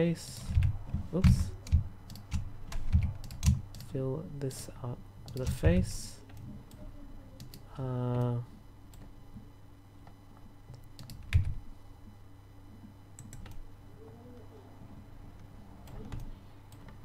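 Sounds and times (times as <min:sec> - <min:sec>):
faint electrical hum: 0:00.0 - 0:17.0
keyboard and mouse clicks: 0:00.4 - 0:03.9, 0:10.7 - 0:11.6, 0:13.2 - 0:13.6, 0:15.8 - 0:17.0.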